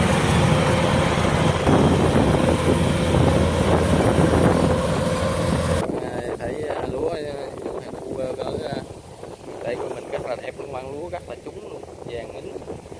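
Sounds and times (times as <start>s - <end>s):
combine harvester running: 0.0s - 6.0s.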